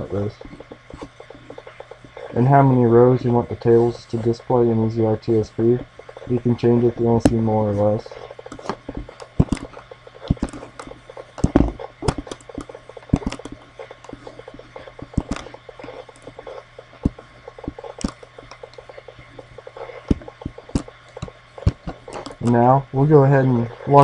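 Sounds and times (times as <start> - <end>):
low steady hum: 0.0 - 24.0
computer mouse clicks: 8.5 - 19.1, 19.8 - 22.6.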